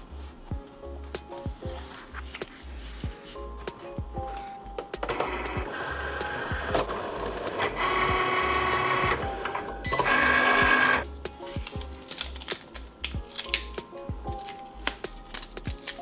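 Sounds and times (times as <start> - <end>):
cutting machine motors whirring: 5.0 - 11.0.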